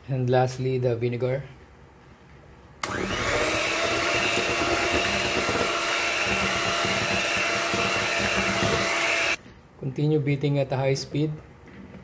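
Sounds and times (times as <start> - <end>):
electric hand mixer whirring: 2.8 - 9.4.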